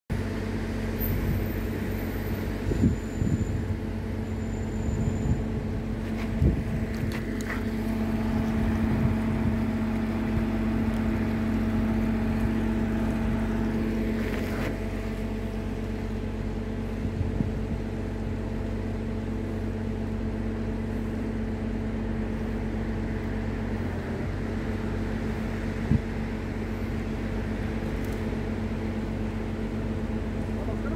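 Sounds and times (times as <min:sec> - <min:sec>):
boat engine running under load: 0:00.1 - 0:30.9.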